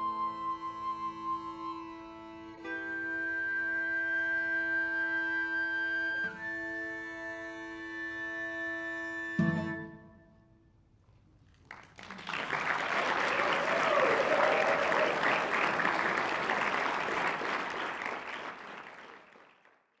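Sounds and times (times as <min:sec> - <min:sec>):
audience applauding: 0:11.5 - 0:20.0.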